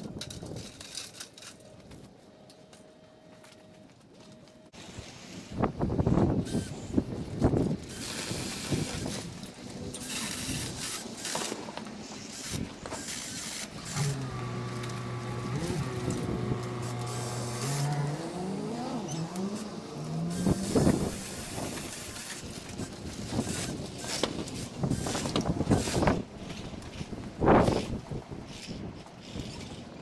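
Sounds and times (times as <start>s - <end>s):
motor running with pitch sweeps: 13.1s - 22.5s.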